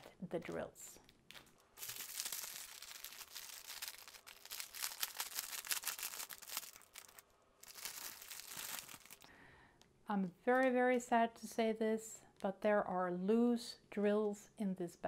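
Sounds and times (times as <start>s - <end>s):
plastic wrap crinkling: 0.9s - 9.3s.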